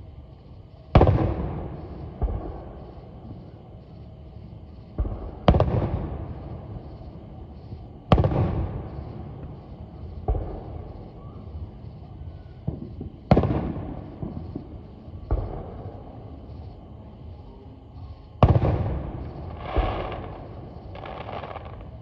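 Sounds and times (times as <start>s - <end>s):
firework booms with echo: 0.9s - 3.4s, 4.9s - 6.8s, 8.1s - 11.7s, 12.6s - 16.3s, 18.4s - 22.0s
small firework pops: 0.9s - 3.5s, 4.9s - 6.3s, 7.7s - 9.6s, 10.2s - 11.6s, 12.6s - 16.0s, 18.4s - 22.0s.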